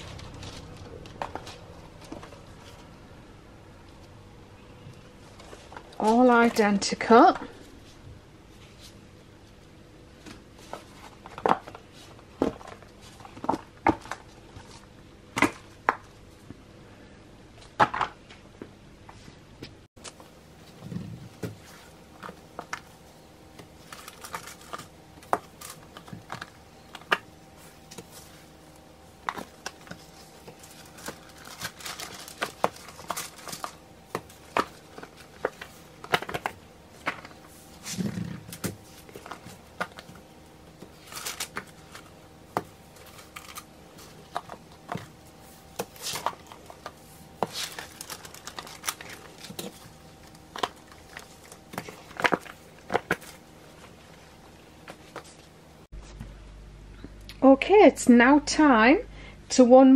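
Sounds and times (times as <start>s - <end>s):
clicks taps and crinkles: 17.6s - 56.3s.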